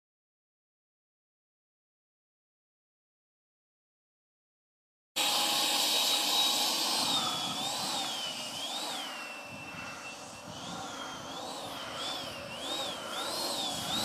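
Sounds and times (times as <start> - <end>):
electric ducted fan whine: 5.2 - 14.0.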